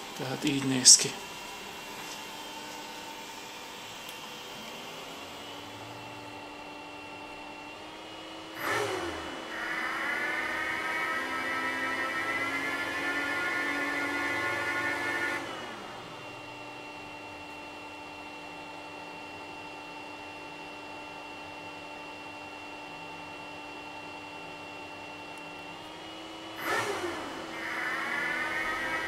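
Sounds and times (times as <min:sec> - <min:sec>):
server cooling fans humming: 0:00.0 - 0:29.0
thin high whine: 0:27.4 - 0:29.0.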